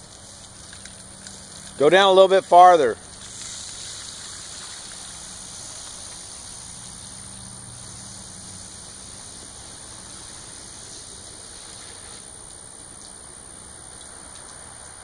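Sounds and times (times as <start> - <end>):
rain falling on a wet street: 0.0 - 15.0.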